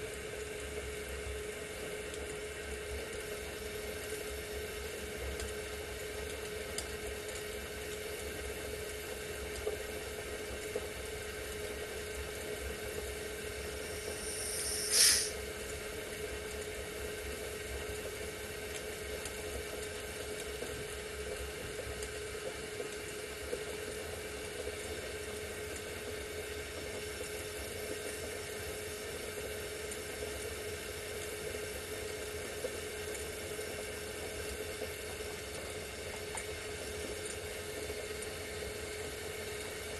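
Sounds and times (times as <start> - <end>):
steady hum: 11.2 - 15.6
gas torch flame hissing: 13.6 - 15.6
brief sharp sound: 14.1 - 15.4.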